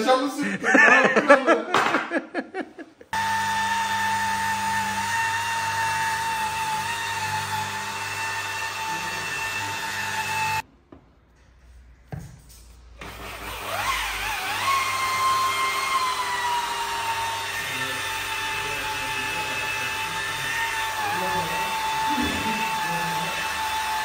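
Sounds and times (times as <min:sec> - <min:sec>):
electric polisher whining: 0:03.1 - 0:10.6, 0:13.0 - 0:24.0.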